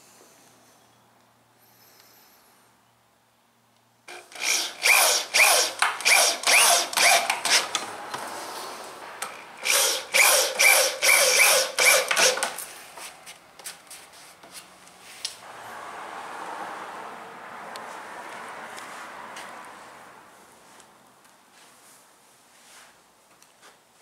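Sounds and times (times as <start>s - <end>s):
power drill driving screw into wood: 4.1s - 7.9s, 9.2s - 12.6s.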